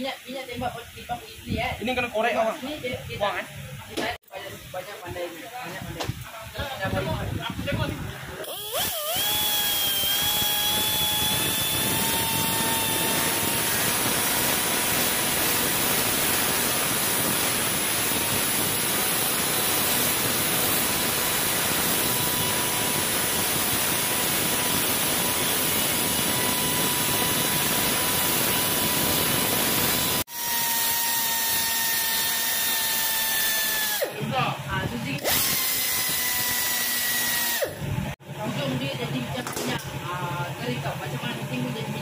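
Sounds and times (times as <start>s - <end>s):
rotary tool grinding: 8.4s - 34.2s, 35.1s - 37.8s.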